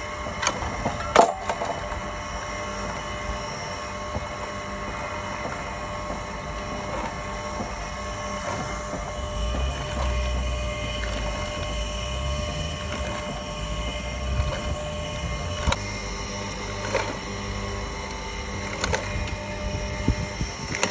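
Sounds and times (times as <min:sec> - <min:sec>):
meat grinder humming and whining: 0:00.0 - 0:20.9.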